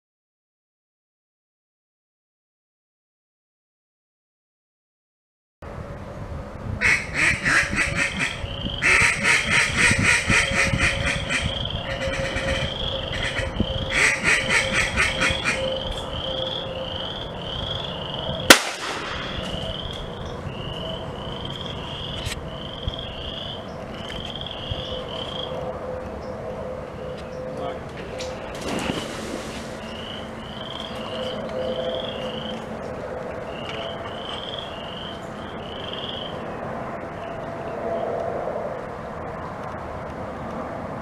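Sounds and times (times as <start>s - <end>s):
duck call quacks: 6.8s - 15.6s
gunshot with echo: 18.5s - 19.6s.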